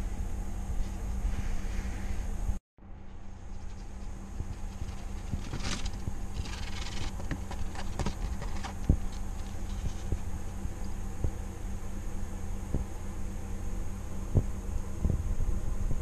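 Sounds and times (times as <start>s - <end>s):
low hum: 0.0s - 16.0s
rustling: 3.1s - 11.0s.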